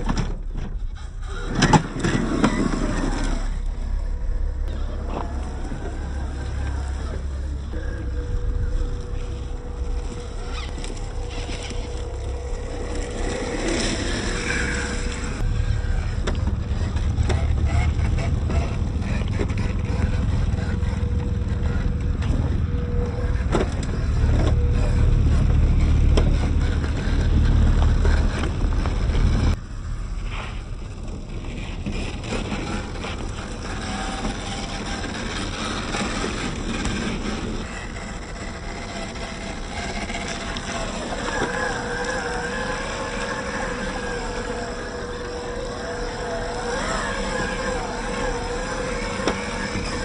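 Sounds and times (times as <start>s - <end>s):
electric drive whine: 0.0s - 50.0s
wind rumble on microphone: 0.0s - 50.0s
stones crunching under tyres: 4.7s - 22.2s.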